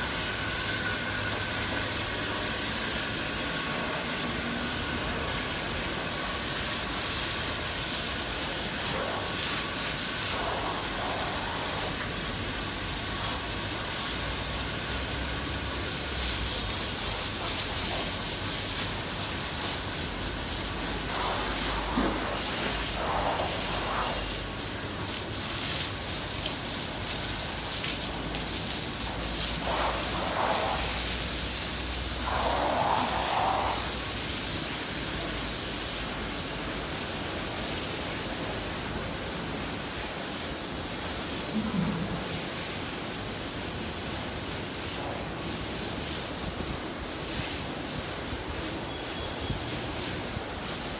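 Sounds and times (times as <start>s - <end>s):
steady hissing noise: 0.0s - 50.9s.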